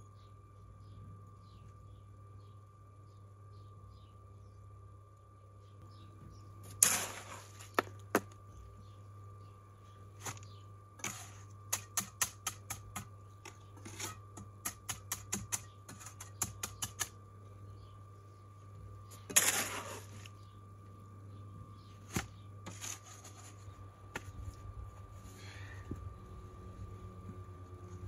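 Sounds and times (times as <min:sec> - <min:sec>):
trowel scraping wet concrete: 0:06.8 - 0:07.9, 0:10.2 - 0:13.0, 0:13.8 - 0:17.1, 0:19.2 - 0:20.3, 0:22.2 - 0:23.7
trowel tapping concrete: 0:11.0 - 0:13.1, 0:13.9 - 0:17.1.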